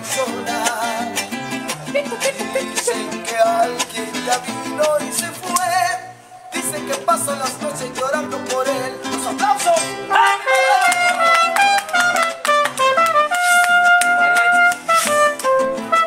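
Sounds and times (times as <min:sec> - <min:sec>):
strummed guitars: 0:00.0 - 0:16.0
trumpets playing melody: 0:10.1 - 0:16.0.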